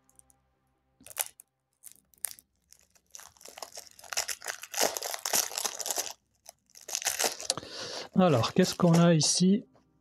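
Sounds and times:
plastic shrink-wrap tearing: 0:01.0 - 0:09.0
plastic crinkling: 0:01.0 - 0:09.4.

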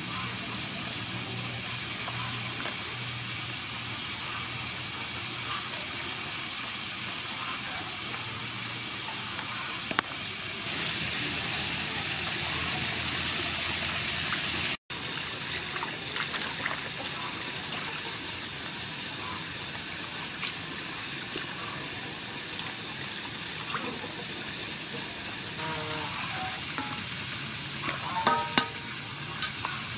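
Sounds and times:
knocks against steel bowl: 0:28.2 - 0:28.8.

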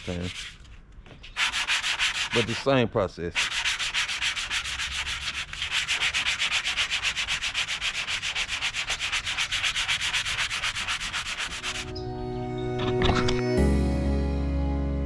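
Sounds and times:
sandpaper rasping back and forth: 0:00.0 - 0:00.7, 0:01.3 - 0:11.9.

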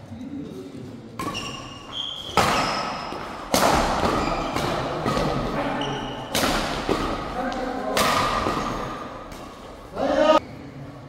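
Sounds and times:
shoes squeaking on court: 0:01.2 - 0:07.7, 0:08.3 - 0:09.9
racket hitting shuttlecock: 0:01.2 - 0:09.8.

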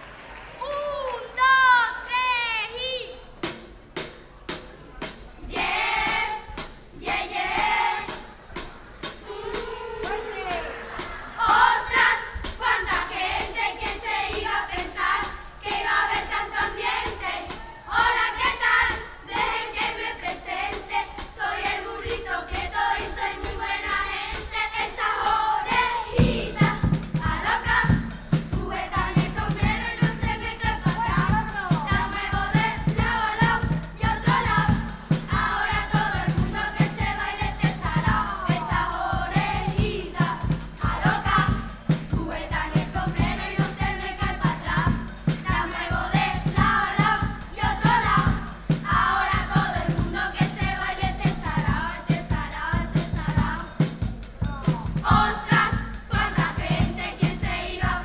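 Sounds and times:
percussion: 0:03.2 - 0:58.0
heavy drum beat and bass: 0:03.4 - 0:58.0
children's chorus singing: 0:05.1 - 0:58.0.

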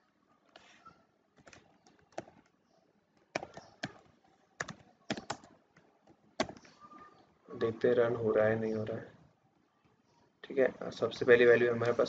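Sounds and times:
computer keyboard key presses: 0:04.6 - 0:06.7.

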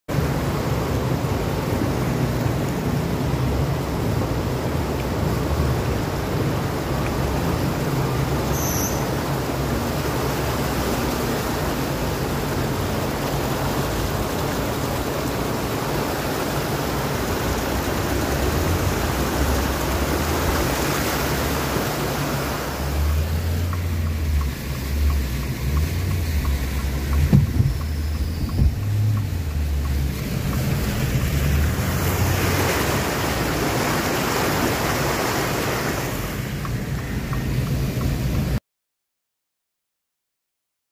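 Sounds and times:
floodwater rushing and splashing: 0:00.1 - 0:38.6
car engine hum: 0:09.2 - 0:38.6
knocks: 0:26.4 - 0:27.8.

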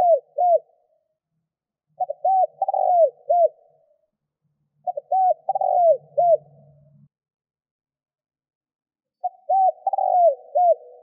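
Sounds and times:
dove cooing: 0:00.0 - 0:00.8, 0:02.0 - 0:03.9, 0:04.8 - 0:06.9, 0:09.2 - 0:11.0.

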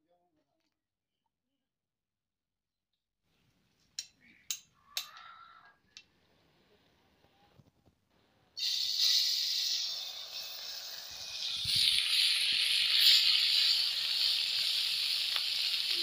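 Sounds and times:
fish sizzling in hot oil: 0:08.6 - 0:16.0.

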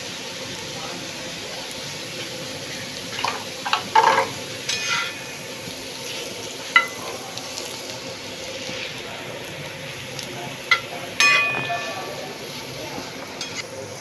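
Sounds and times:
potato slices sizzling in oil: 0:00.0 - 0:14.0
metal spatula scraping griddle: 0:03.1 - 0:05.5
spatula clinking on griddle: 0:03.1 - 0:07.2, 0:10.7 - 0:12.8, 0:13.4 - 0:13.7.

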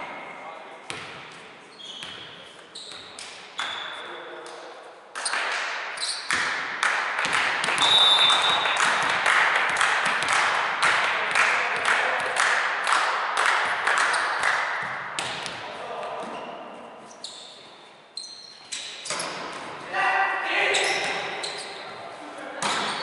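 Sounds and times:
rhythmic clapping: 0:06.3 - 0:15.4.

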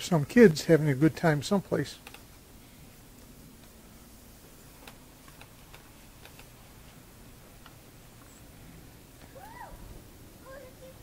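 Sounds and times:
faint irregular ticks: 0:00.4 - 0:08.5.

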